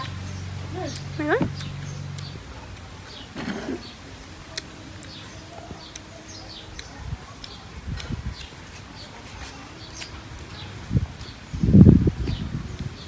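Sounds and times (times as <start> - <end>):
low thumps: 0.0 - 4.1
small birds chirping: 0.0 - 13.0.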